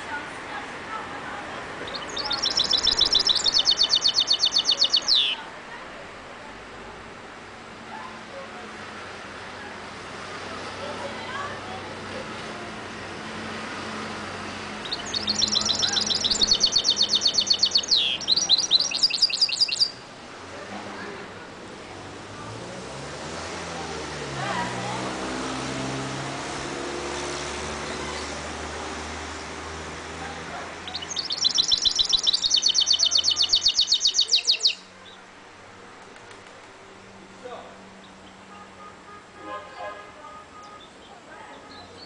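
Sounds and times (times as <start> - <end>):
bird singing rapid trill: 1.8 - 5.4, 14.7 - 20.0, 30.8 - 35.2
bird twittering: 1.8 - 5.4, 14.8 - 20.0, 30.8 - 35.2.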